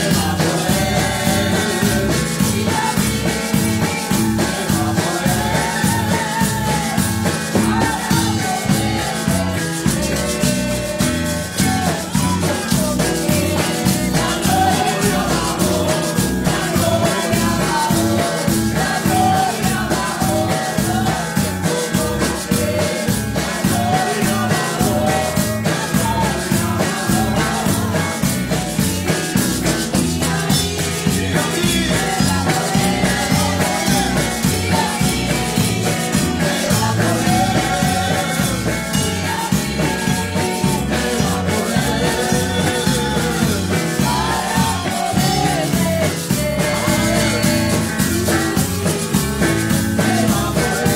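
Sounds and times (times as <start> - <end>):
woman singing into microphone: 0.0 - 28.9, 29.7 - 50.9
electric bass guitar: 0.0 - 50.9
hands clapping: 0.0 - 50.9
steady beat: 0.0 - 50.9.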